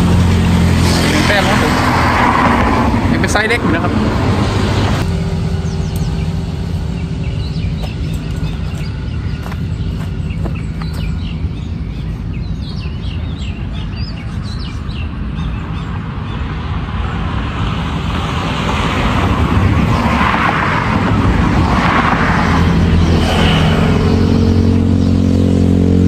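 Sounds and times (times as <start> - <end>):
low rumble of road traffic: 0.0 - 26.0
passing vehicle engine: 0.0 - 26.0
small birds chirping: 4.7 - 16.6.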